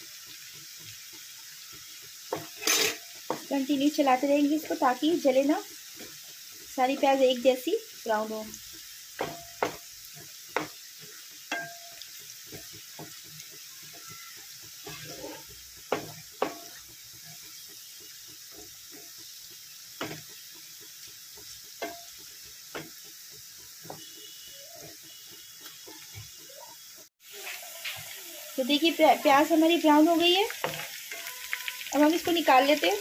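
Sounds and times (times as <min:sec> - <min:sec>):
onions sizzling in oil: 0:00.0 - 0:33.0
wooden spoon scraping a pan: 0:02.2 - 0:03.9, 0:09.3 - 0:19.2, 0:29.3 - 0:32.4.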